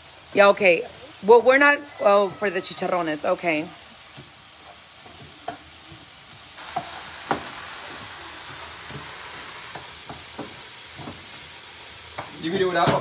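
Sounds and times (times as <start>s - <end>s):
food sizzling in a frying pan: 0.0s - 13.0s
spatula knocking against pan: 9.8s - 11.3s.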